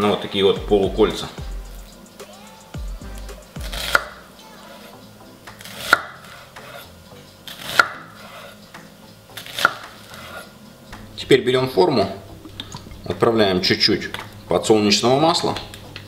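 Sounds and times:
knife crunching through onion: 0:03.1 - 0:04.2, 0:05.5 - 0:06.9, 0:07.5 - 0:08.6, 0:09.4 - 0:10.5.

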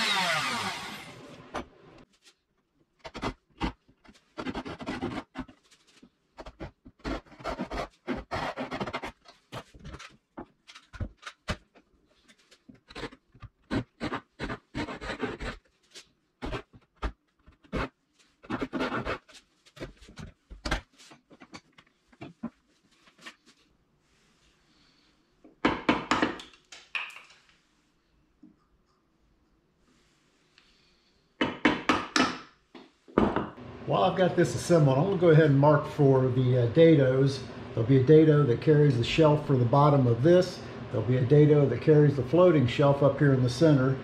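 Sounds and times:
hand saw cutting wood: 0:00.0 - 0:01.4, 0:06.4 - 0:09.2.

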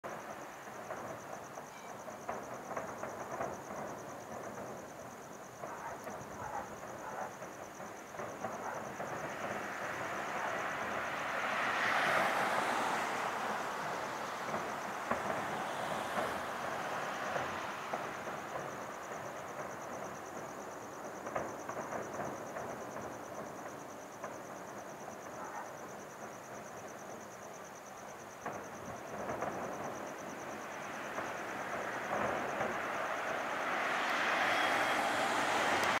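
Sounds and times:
crickets chirping: 0:00.0 - 0:36.0
distant fireworks crackling: 0:00.0 - 0:36.0
sharp firework pops: 0:00.1 - 0:27.4, 0:28.4 - 0:36.0
rushing noise: 0:07.8 - 0:21.1, 0:28.4 - 0:36.0.

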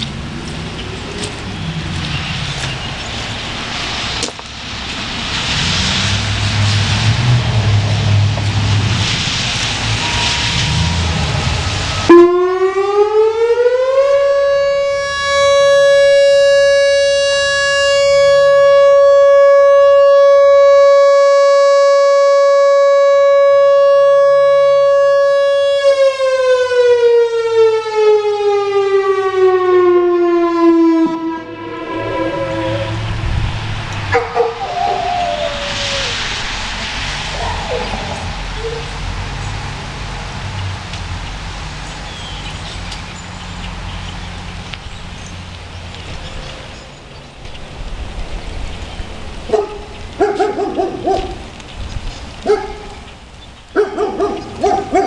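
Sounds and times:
rushing background noise: 0:00.0 - 0:12.5, 0:31.0 - 0:55.0
electronic warning siren: 0:09.7 - 0:36.1.

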